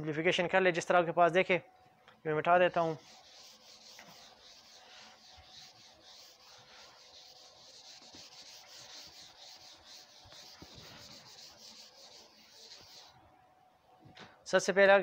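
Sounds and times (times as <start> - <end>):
eraser rubbing whiteboard: 2.8 - 13.2.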